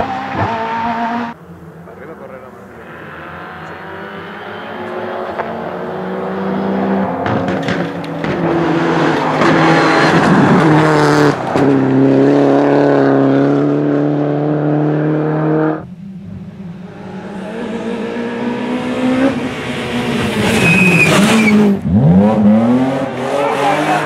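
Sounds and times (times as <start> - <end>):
rally car engine at high revs: 0.0 - 1.4, 2.7 - 15.9, 16.6 - 24.0
tyre squeal: 20.4 - 21.8.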